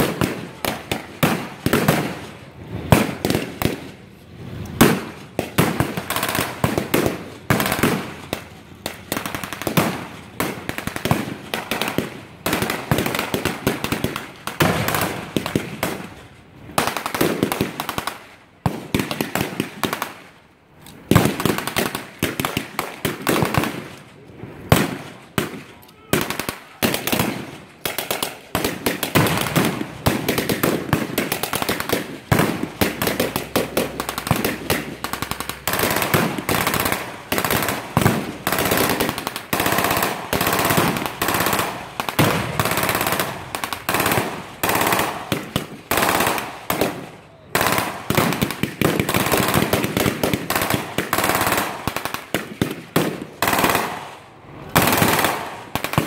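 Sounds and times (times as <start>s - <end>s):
automatic gunfire bursts: 47.6s - 52.1s.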